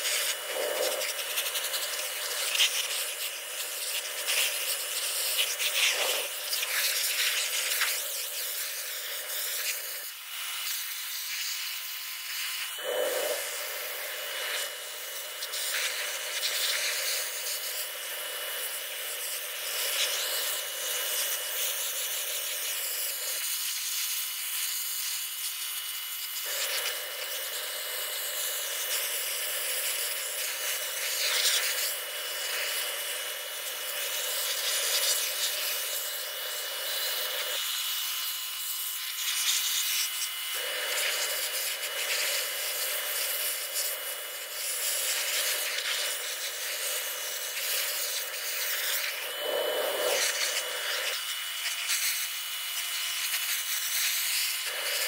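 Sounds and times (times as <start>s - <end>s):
pressure washer spray hissing: 0.0s - 52.4s, 53.2s - 55.0s.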